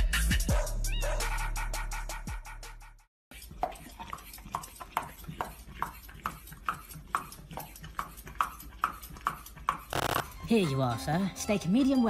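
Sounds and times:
dog crunching a carrot: 0:03.3 - 0:10.0.

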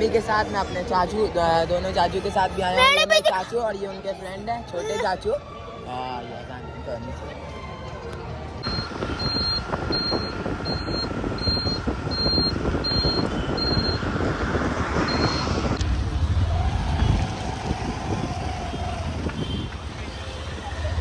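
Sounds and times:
engine and traffic rumble: 0:00.0 - 0:21.0
high electronic beeps: 0:08.6 - 0:14.0.

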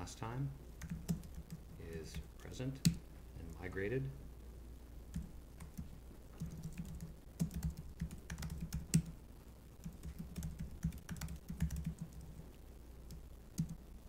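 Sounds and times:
typing on computer keyboard: 0:00.8 - 0:01.6, 0:05.2 - 0:09.1, 0:09.8 - 0:12.4, 0:13.6 - 0:13.8.

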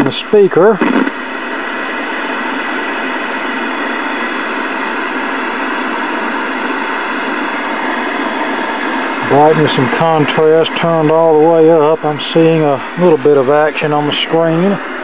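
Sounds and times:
tv static hiss: 0:00.0 - 0:15.0.

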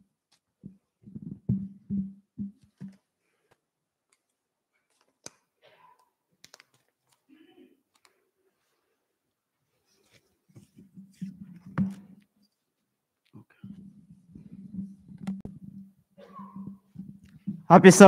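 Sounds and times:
person speaking: 0:17.6 - 0:18.0.

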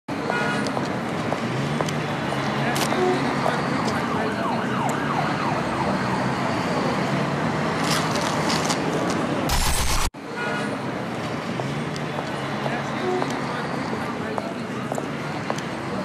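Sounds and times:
city street traffic: 0:00.1 - 0:16.0
loud static hiss: 0:09.5 - 0:10.1.

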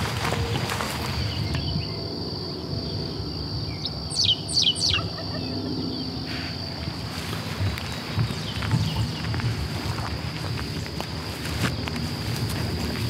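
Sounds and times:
footsteps swishing through grass: 0:00.0 - 0:01.6, 0:06.7 - 0:13.0
high insect trill: 0:00.0 - 0:13.0
bird whistling: 0:04.1 - 0:05.2.

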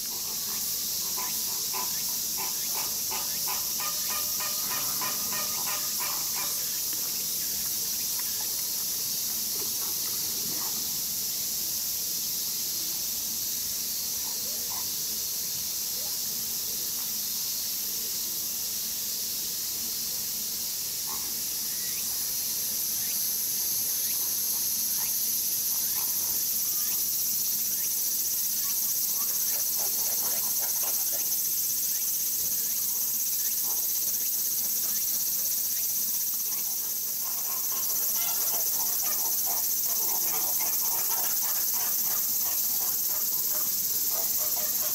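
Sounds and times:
steady high hiss: 0:00.0 - 0:44.9
flamingos calling: 0:01.7 - 0:06.6, 0:37.2 - 0:44.9.

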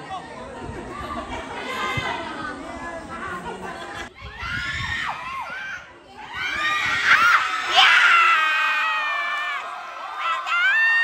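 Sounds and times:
crowd shouting and screaming: 0:04.1 - 0:11.0.

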